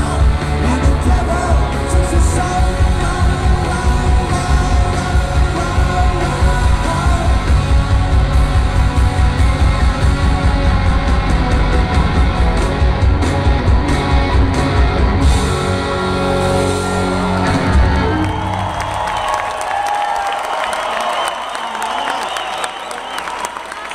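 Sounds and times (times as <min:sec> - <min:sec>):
person singing: 0:00.0 - 0:08.0
rock band playing live: 0:00.0 - 0:19.7.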